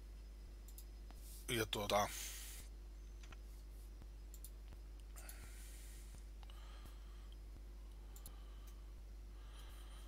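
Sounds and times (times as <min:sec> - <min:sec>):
low mains hum: 0:00.0 - 0:10.0
soft ticking: 0:03.2 - 0:05.5, 0:06.1 - 0:09.8
faint clicks: 0:04.3 - 0:05.4, 0:07.3 - 0:08.8.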